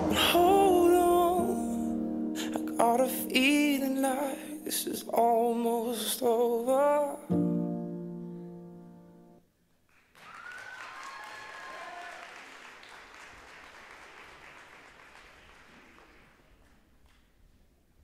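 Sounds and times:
audience applauding: 9.9 - 17.2
audience cheering: 10.1 - 13.7.

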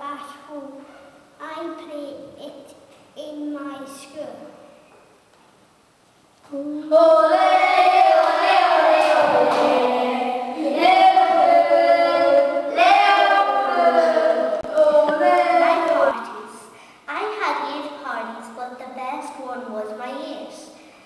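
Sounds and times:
child singing: 6.5 - 17.5.

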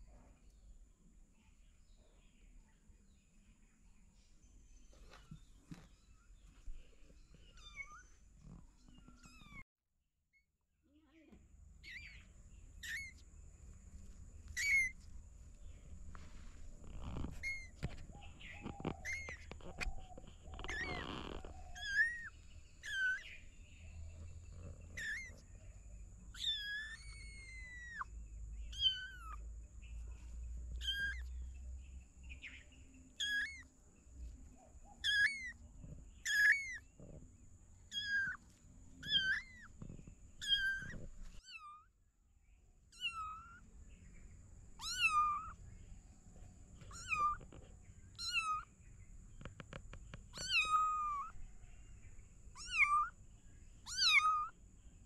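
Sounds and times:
kittens meowing: 7.4 - 9.6, 11.8 - 12.2, 12.8 - 13.2, 14.5 - 15.0, 16.8 - 23.5, 24.1 - 25.6, 26.3 - 28.1, 28.7 - 29.4, 30.7 - 31.4, 33.2 - 33.7, 35.0 - 35.6, 36.2 - 37.2, 37.9 - 38.4, 39.0 - 41.9, 42.9 - 43.6, 44.8 - 45.6, 46.8 - 48.7, 50.3 - 51.4, 52.5 - 53.2, 53.8 - 54.6.

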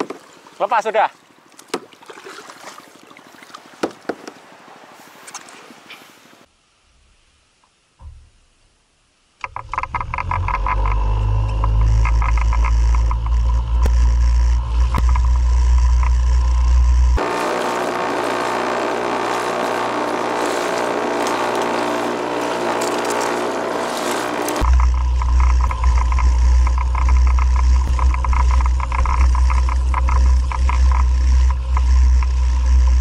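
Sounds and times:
low rumble with fast ticking: 9.8 - 33.0
water spraying off hull: 17.2 - 32.0.

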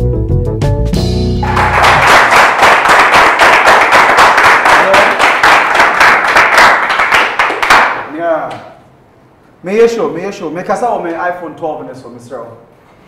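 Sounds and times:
keyboard melody over heavy bass: 0.0 - 2.0.

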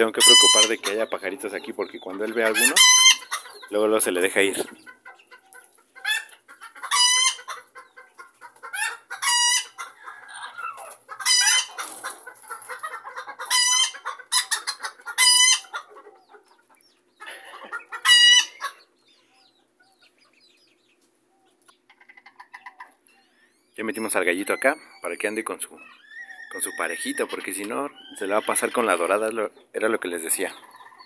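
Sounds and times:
chickens clucking: 0.0 - 31.0
chicken loud high call: 0.2 - 0.9, 2.6 - 3.3, 15.2 - 15.8.

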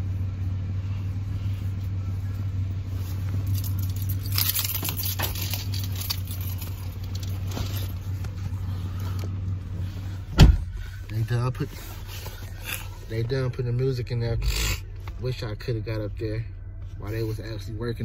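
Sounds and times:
car interior drone: 0.0 - 18.0
clothing rustling on microphone: 1.5 - 13.3.

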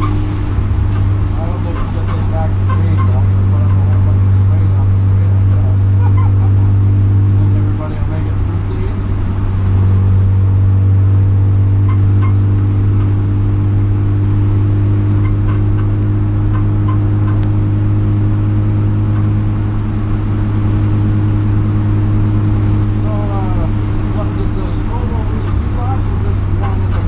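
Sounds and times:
race car engine running steadily: 0.0 - 27.0
light clicks or rattles: 15.2 - 17.7.

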